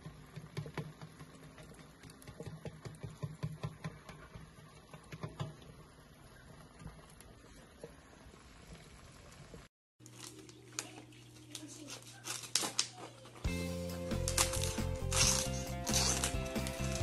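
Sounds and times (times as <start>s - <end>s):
roasting pork skin crackling: 8.2s - 17.0s.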